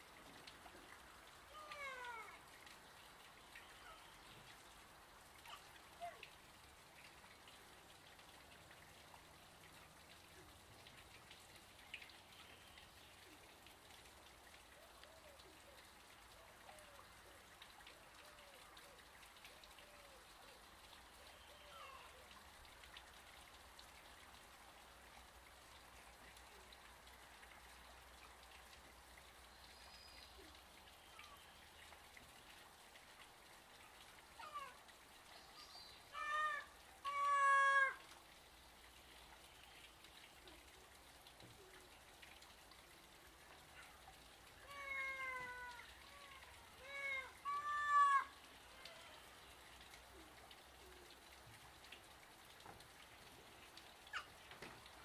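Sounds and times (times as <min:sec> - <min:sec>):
lemurs giving meow-like calls: 0:36.2 - 0:38.0, 0:44.7 - 0:49.2.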